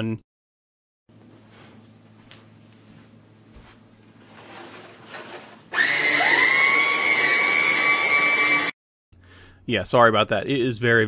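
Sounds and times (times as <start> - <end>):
vacuum motor whine: 5.2 - 8.7.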